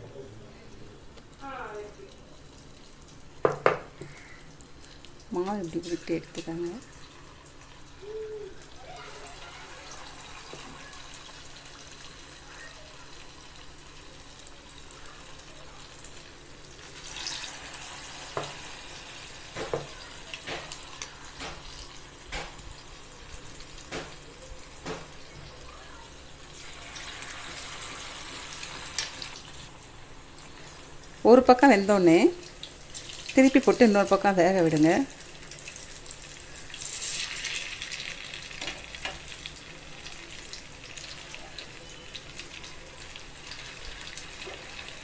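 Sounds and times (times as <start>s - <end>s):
food frying in hot oil: 0.7s - 45.0s.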